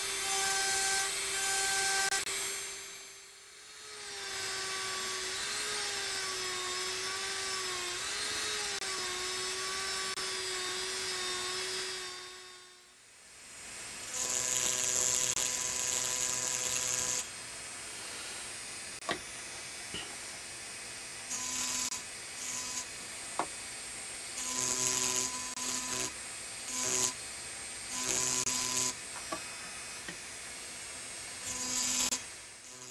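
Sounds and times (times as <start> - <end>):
rotary drill whining into glass: 0.0 - 12.4, 14.1 - 17.3, 21.3 - 22.9, 24.3 - 27.2, 27.9 - 29.8, 31.4 - 32.9.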